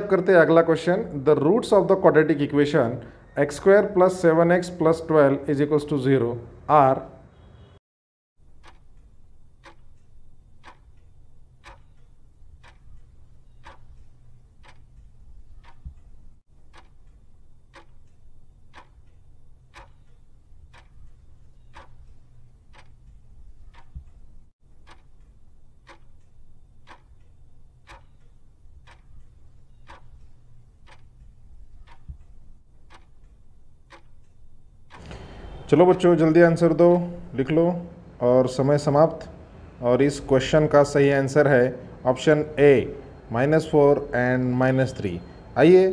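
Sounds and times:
clock tick-tock: 8.4 - 37.6.

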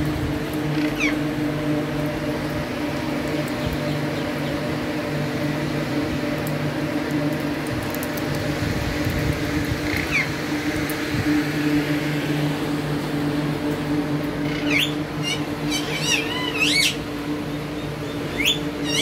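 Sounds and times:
low mechanical hum: 0.0 - 19.0
parakeet high call: 0.7 - 1.2, 14.4 - 17.0, 18.3 - 19.0.

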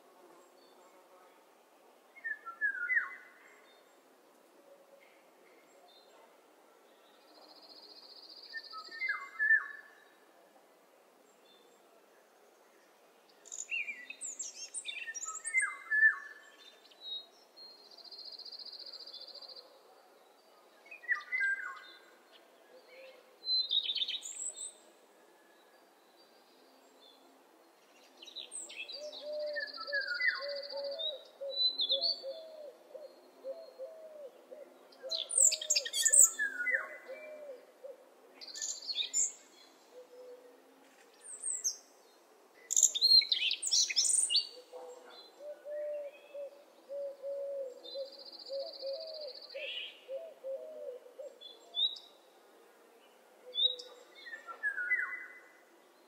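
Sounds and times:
birds chirping and trilling: 28.2 - 37.6.

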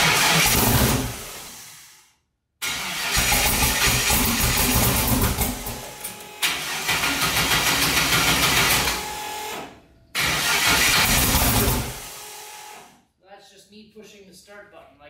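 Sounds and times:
engine starter cranking: 0.0 - 1.3, 2.6 - 5.8, 6.4 - 9.0, 10.2 - 12.1.

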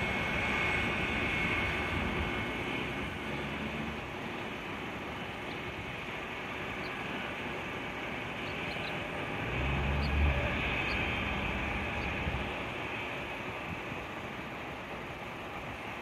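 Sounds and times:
jet engines rushing: 0.0 - 16.0
low rumble: 8.7 - 12.7.

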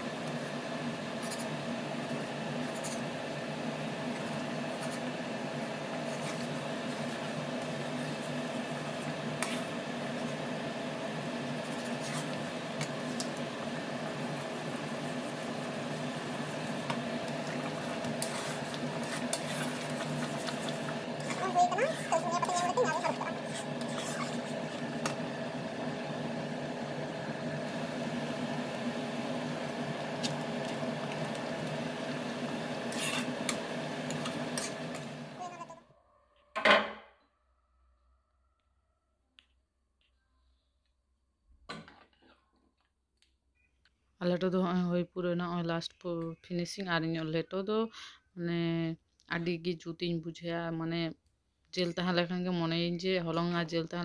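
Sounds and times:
steady mechanical hum: 0.0 - 35.9, 43.9 - 54.0
metal ladle stirring in a pan: 16.7 - 22.8, 32.9 - 33.3.

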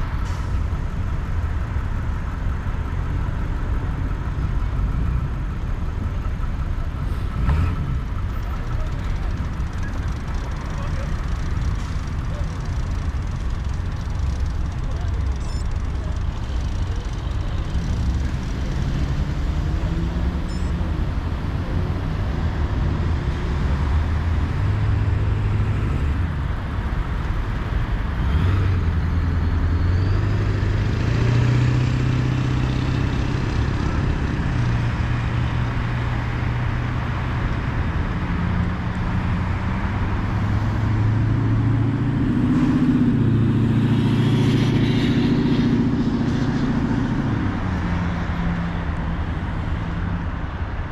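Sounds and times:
traffic rumble: 0.0 - 50.9
engine hums shifting pitch: 13.0 - 50.8.

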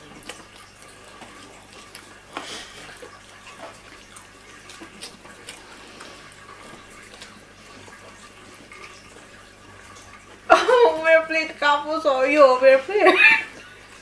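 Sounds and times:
people eating with clicks and smacks: 0.0 - 10.5.

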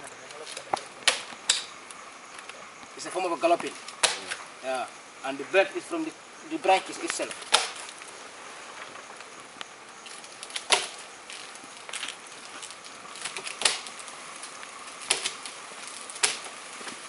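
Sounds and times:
faint outdoor hiss: 0.0 - 17.0.

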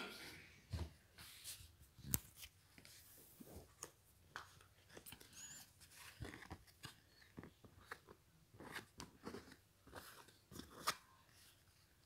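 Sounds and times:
playing cards rustling and clicking: 3.6 - 11.4.

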